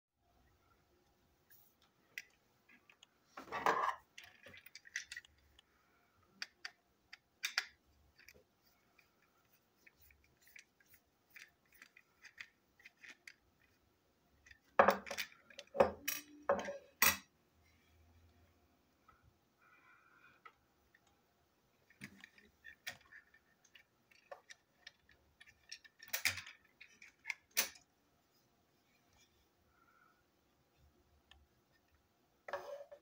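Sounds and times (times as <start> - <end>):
plastic toy clicks and scrapes: 4.2 - 5.6, 9.8 - 13.8.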